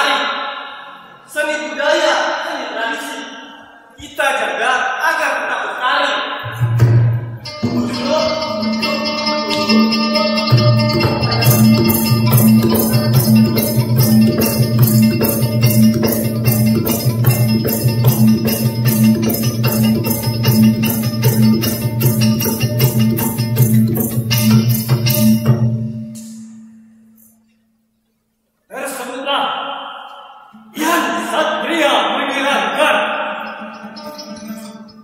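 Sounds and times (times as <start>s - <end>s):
held melodic tones: 6.4s - 27.9s, 30.5s - 35.0s
shaker rhythm: 6.5s - 27.6s, 33.4s - 35.0s.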